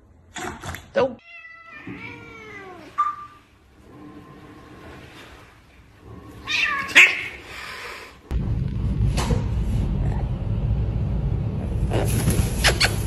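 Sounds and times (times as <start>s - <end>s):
cat meowing: 1.2s - 3.0s.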